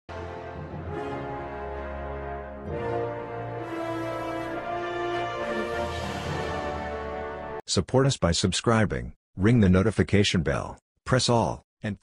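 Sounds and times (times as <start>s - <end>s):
intro theme music: 0.1s - 7.6s.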